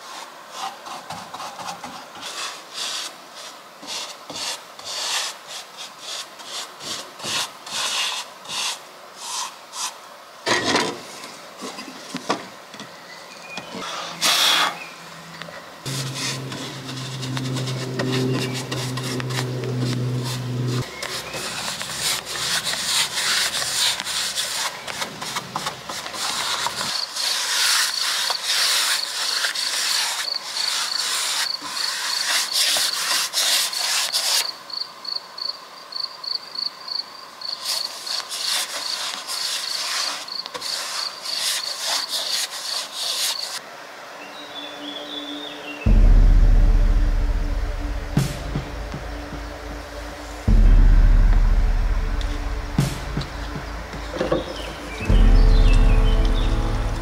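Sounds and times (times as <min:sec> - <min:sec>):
continuous rasping hiss: 0:00.0 - 0:57.0
steady low hum: 0:14.9 - 0:25.9, 0:45.8 - 0:57.0
hand rubbing wood: 0:15.9 - 0:34.5.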